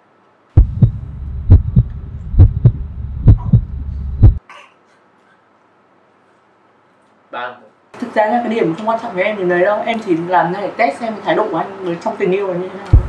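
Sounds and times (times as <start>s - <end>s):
heartbeat thumps: 0.6s - 4.4s
low throbbing drone: 0.6s - 4.4s.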